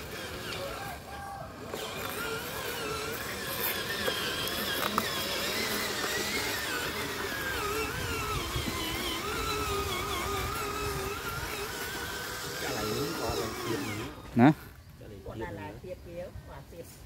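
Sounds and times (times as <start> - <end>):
toy truck motor whining: 0.0 - 14.8.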